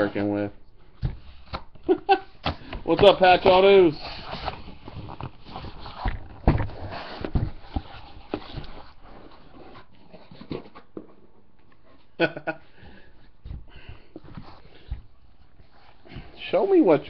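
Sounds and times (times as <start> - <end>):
cardboard rustling and scraping: 2.5 - 11.3, 13.1 - 17.0.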